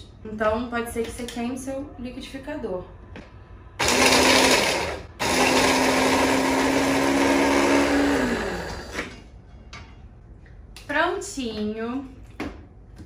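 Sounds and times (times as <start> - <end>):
hand blender motor hum: 3.8 - 9.0.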